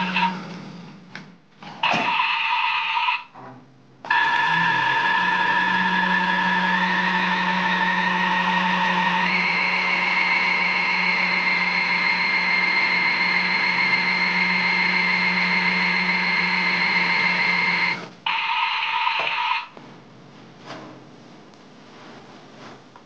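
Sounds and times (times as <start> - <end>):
toy washing machine motor whine: 0.0 - 0.6, 1.8 - 3.2, 4.1 - 19.7.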